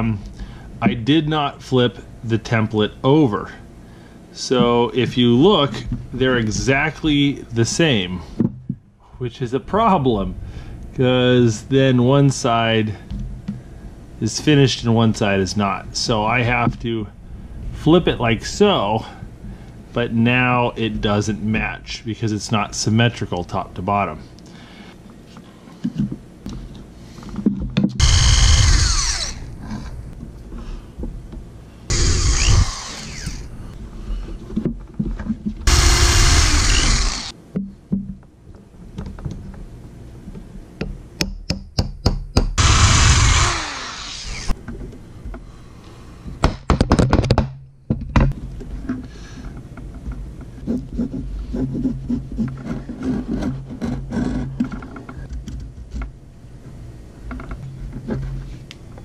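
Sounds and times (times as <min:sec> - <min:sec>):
power tool bursts: 0:28.0 - 0:29.5, 0:31.9 - 0:33.5, 0:35.7 - 0:37.3, 0:42.6 - 0:44.6.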